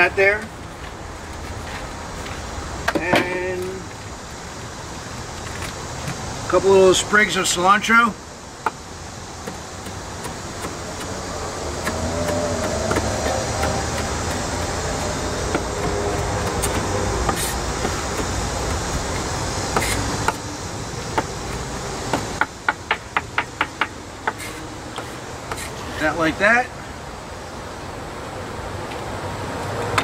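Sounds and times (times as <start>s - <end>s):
engine rumble: 0.0s - 30.0s
knife chopping on wooden board: 9.4s - 18.8s, 19.7s - 20.4s.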